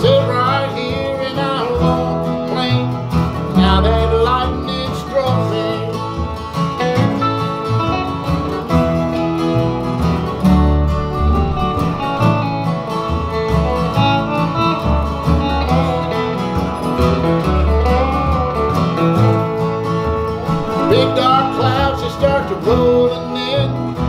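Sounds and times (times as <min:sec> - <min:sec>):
acoustic guitars: 0:00.0 - 0:24.0
electric guitar: 0:00.0 - 0:24.0
plucked upright bass: 0:00.0 - 0:24.0.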